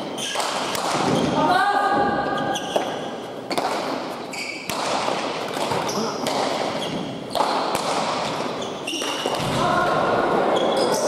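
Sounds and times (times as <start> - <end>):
shoes squeaking on court: 0.0 - 0.5, 2.2 - 4.8, 5.5 - 7.6, 8.2 - 9.5, 10.5 - 11.0.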